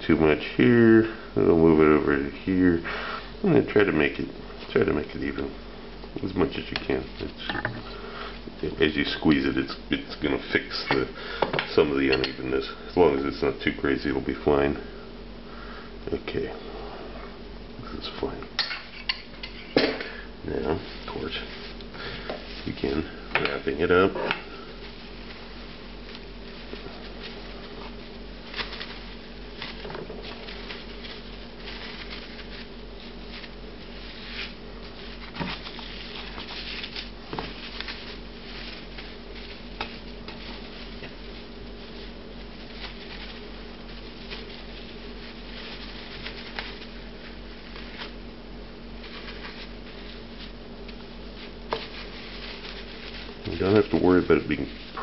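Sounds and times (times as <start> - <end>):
steady low hum: 0.0 - 55.0
cling film crinkling: 20.6 - 55.0.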